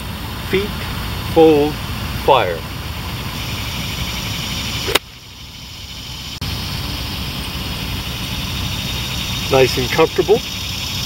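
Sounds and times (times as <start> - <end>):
low background rumble: 0.0 - 11.0
golf club striking ball: 4.8 - 5.1.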